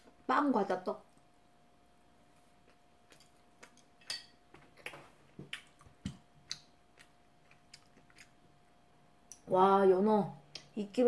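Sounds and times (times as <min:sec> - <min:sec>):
person eating with smacks: 0:02.2 - 0:08.6.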